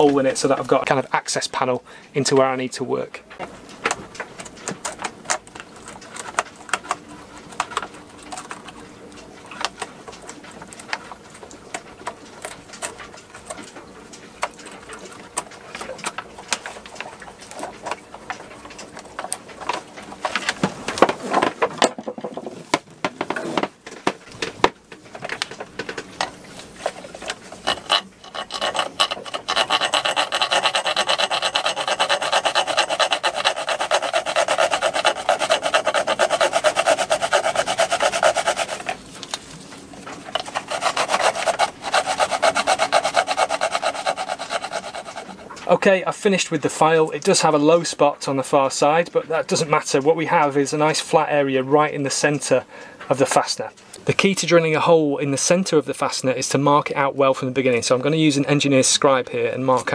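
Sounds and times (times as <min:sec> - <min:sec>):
hand file rasping on metal: 0:27.6 - 0:39.0, 0:40.4 - 0:45.6.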